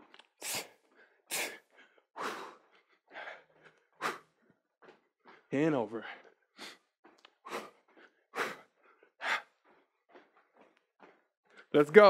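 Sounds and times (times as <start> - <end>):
person puffing breaths: 0.3 - 11.7.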